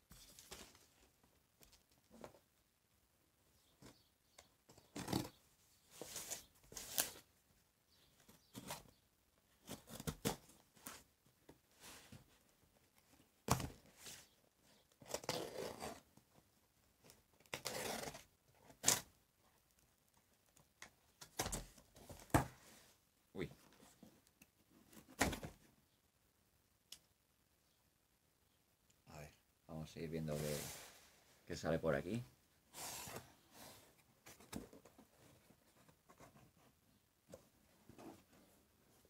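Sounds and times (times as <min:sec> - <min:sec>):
tape and cardboard ripping: 0:15.0 - 0:16.0, 0:17.4 - 0:19.1.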